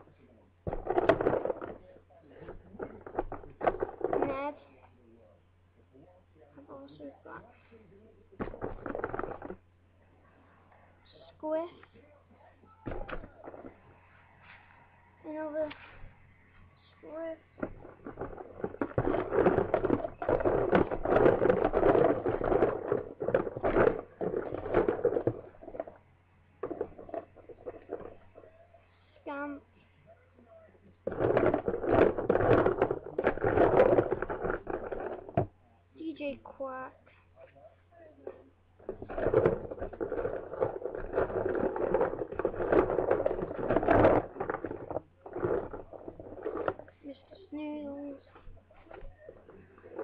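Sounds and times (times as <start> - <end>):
plastic toys clicking and clattering: 0.7 - 4.6, 8.4 - 9.6, 12.8 - 13.8, 17.0 - 26.0, 26.6 - 29.6, 30.9 - 36.9, 38.2 - 50.0.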